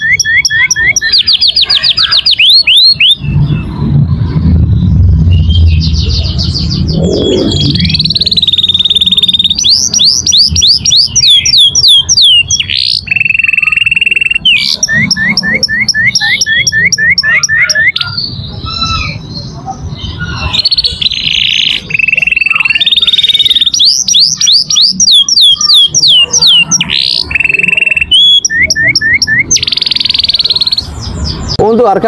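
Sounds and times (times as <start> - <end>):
canary singing trills: 0.0 - 32.0.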